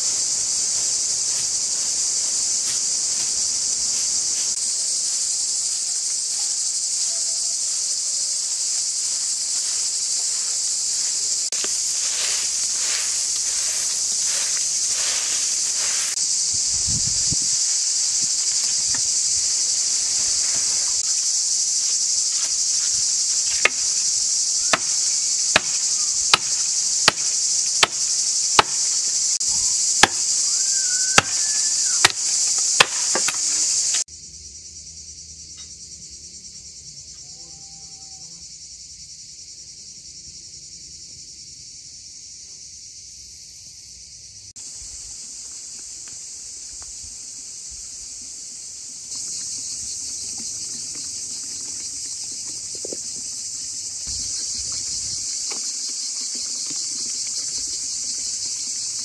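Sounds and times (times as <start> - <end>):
high insect buzz: 0.0 - 59.0
axe chopping wood: 23.5 - 23.9, 24.7 - 29.0, 30.0 - 30.4, 31.2 - 31.4, 32.0 - 34.0.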